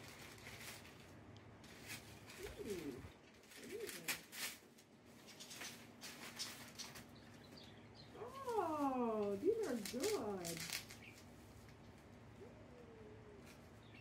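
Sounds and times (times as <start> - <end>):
gift bag paper rustling: 0.0 - 7.2, 8.2 - 11.8.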